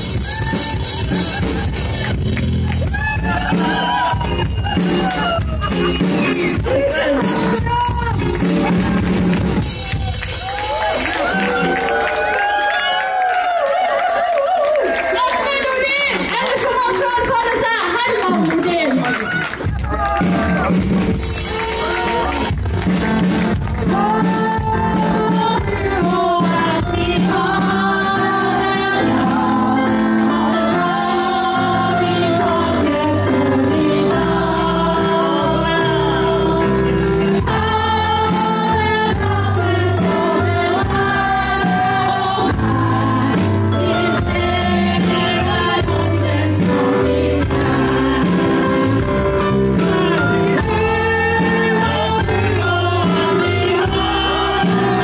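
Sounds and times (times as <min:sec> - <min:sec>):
drum kit: 0:00.0 - 0:12.6, 0:19.2 - 0:55.0
bass: 0:00.0 - 0:55.0
keyboard: 0:15.5 - 0:55.0
people singing: 0:23.9 - 0:55.0.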